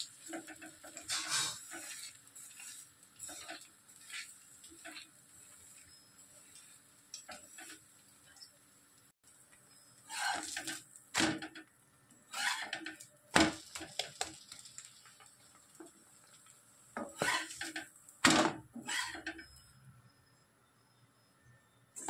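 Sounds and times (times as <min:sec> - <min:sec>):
spatula scraping a griddle: 0:00.0 - 0:08.7, 0:09.7 - 0:10.8, 0:12.2 - 0:15.9, 0:17.0 - 0:17.9, 0:18.8 - 0:19.6.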